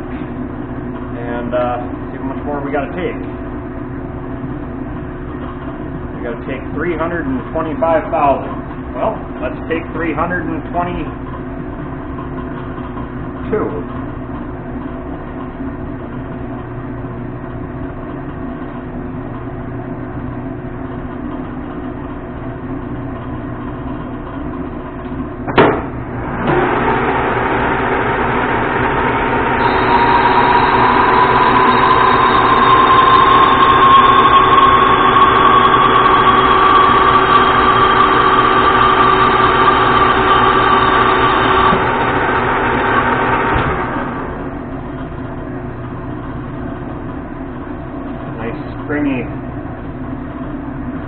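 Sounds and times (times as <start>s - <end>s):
lathe machine hum: 20.1s - 51.0s
lathe headstock whine: 25.9s - 50.0s.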